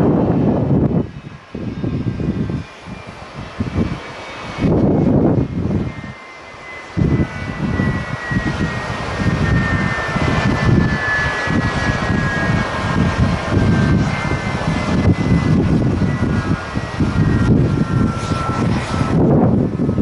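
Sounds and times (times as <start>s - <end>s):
gusty wind buffeting microphone: 0.0s - 20.0s
jet engines whining: 0.0s - 20.0s.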